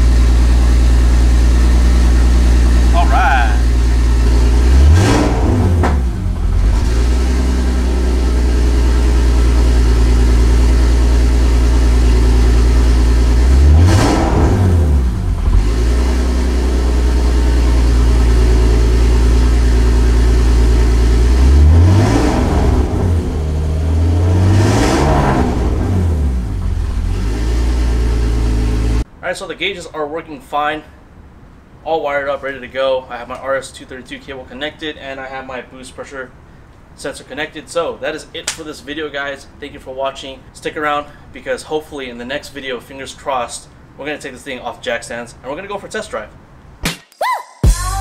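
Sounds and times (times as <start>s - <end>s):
car engine idling and revving: 0.0s - 29.1s.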